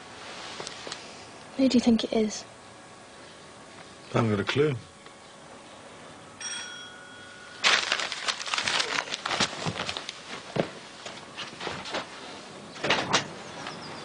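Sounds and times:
close crackling and rustling: 7.6s - 13.8s.

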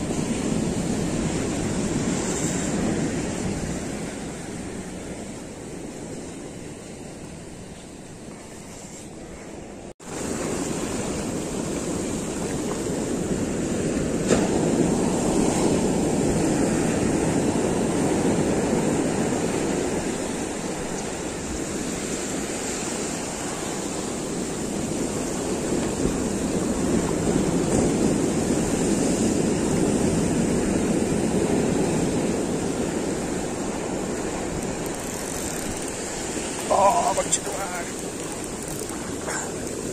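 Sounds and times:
ocean surf breaking on beach: 0.0s - 39.9s.

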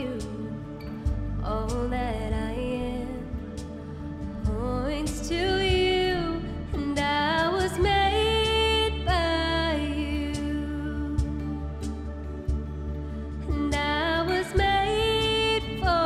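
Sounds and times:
woman singing: 0.0s - 12.1s, 13.4s - 16.0s
acoustic guitar: 0.0s - 16.0s.

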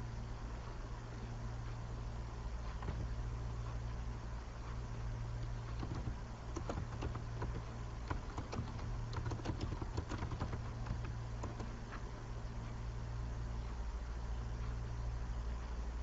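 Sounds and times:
steady low hum: 0.0s - 16.0s
keyboard key clicks: 5.8s - 11.8s.

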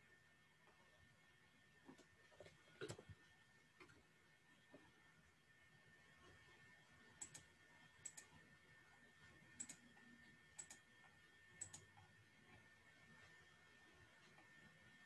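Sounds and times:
computer mouse clicks: 7.2s - 8.3s, 9.5s - 12.0s.

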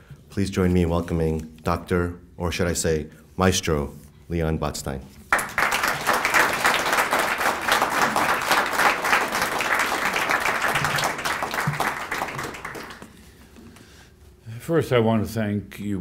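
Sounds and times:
audience applauding: 5.3s - 13.3s.

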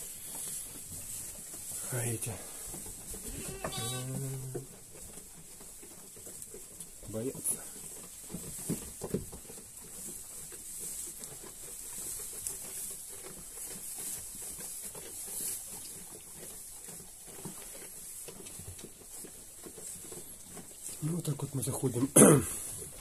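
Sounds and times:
sheep rustling and shuffling: 0.0s - 23.0s.

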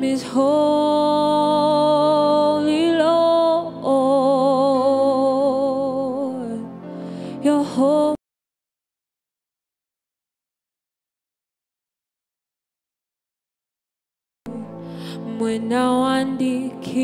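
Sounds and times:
woman singing into a microphone: 0.0s - 8.2s, 14.5s - 17.0s.

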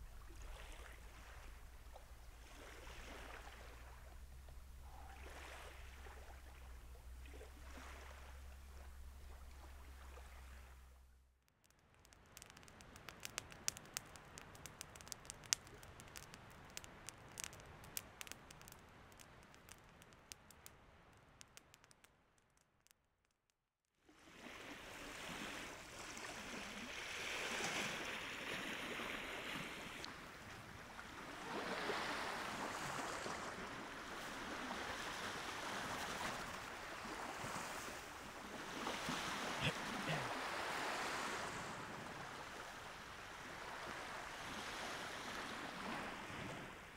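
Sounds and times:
sharp crackling clicks: 11.4s - 23.6s
waves washing on shore: 24.2s - 46.9s.

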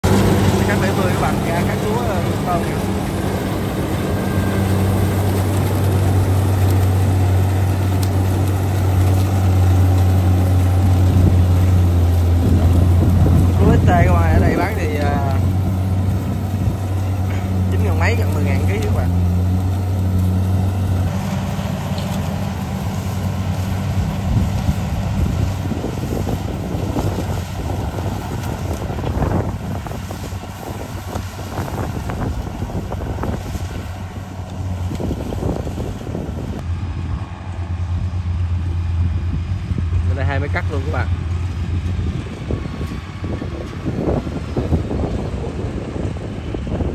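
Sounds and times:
crackling of cut stalks: 0.0s - 44.6s
combine harvester diesel engine: 0.0s - 46.9s.

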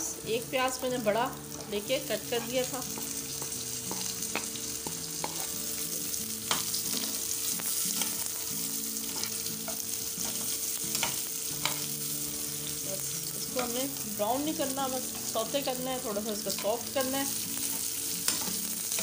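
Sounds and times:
onions sizzling in hot oil: 0.0s - 19.0s
metal spoon scraping a pan: 2.3s - 5.6s, 6.5s - 12.2s, 15.0s - 19.0s.

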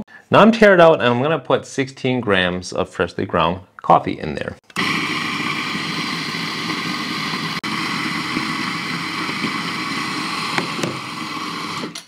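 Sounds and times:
coffee grinder running: 4.7s - 12.0s.

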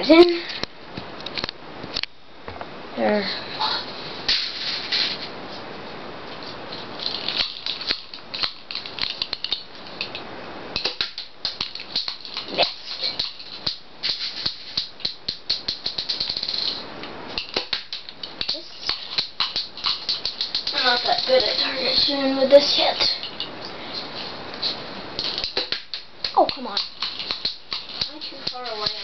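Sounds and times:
plastic toy gun clicking and rattling: 7.0s - 10.1s, 10.8s - 16.8s, 17.4s - 22.1s, 25.2s - 29.0s.

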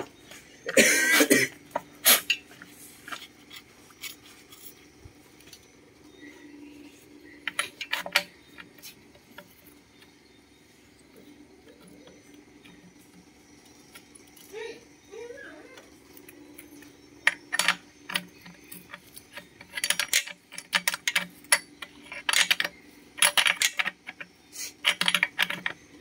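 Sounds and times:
metal parts clicking and clinking: 7.3s - 9.9s, 16.1s - 26.0s.

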